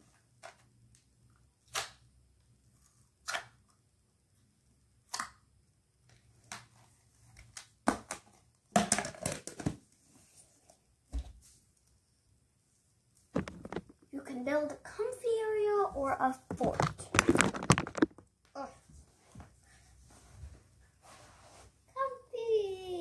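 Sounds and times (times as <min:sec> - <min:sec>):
rustling: 0:13.3 - 0:14.2, 0:16.0 - 0:21.8
plastic tub clattering: 0:13.4 - 0:14.1, 0:16.4 - 0:18.2.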